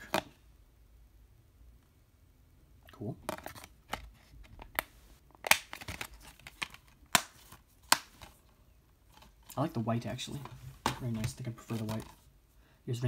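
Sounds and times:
plastic case clicks and snaps: 4.6 - 8.3.

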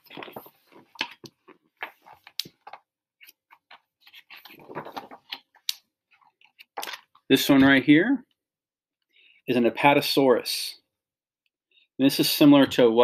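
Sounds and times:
book pages flipping: 0.0 - 7.2.

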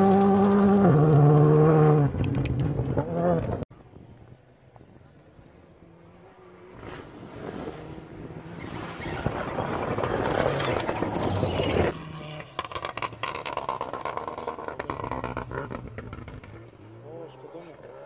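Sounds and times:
rally car engine at full throttle: 0.0 - 3.6, 5.8 - 18.0
distant rally car engine crackling: 5.8 - 18.0.

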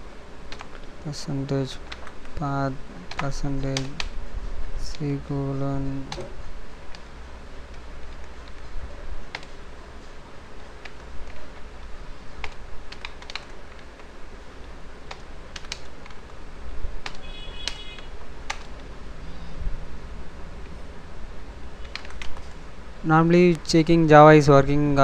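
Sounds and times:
steady low hum: 0.0 - 25.0
computer keyboard typing: 0.5 - 0.9, 3.0 - 4.2, 7.7 - 8.7, 9.3 - 9.6, 10.6 - 14.1, 15.0 - 16.4, 17.0 - 18.9, 21.8 - 22.6.

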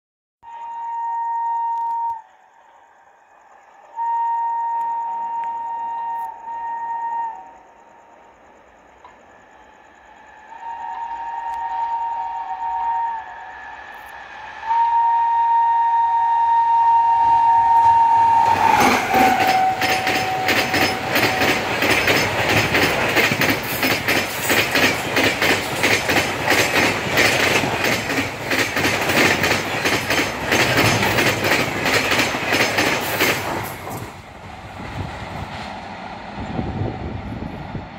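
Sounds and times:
two-tone train horn: 0.4 - 2.8, 3.9 - 8.0, 10.3 - 22.6
train wheels clickety-clack: 17.8 - 35.9.

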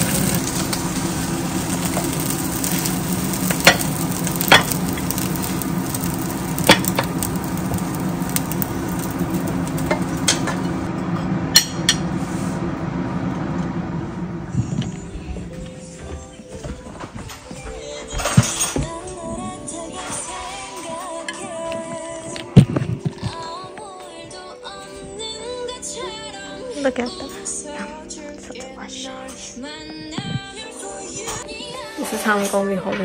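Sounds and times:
rice sizzling in frying pan: 0.0 - 10.9.

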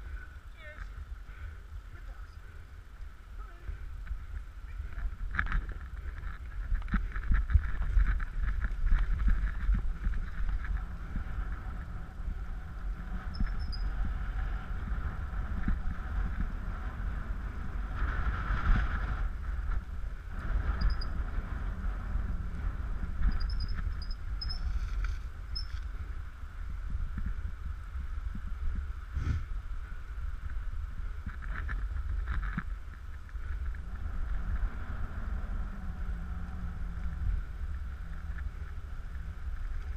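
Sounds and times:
wind on microphone: 0.0 - 39.9
wheels rumbling over gravel: 2.0 - 39.9
faint high squeaks: 13.3 - 13.9.

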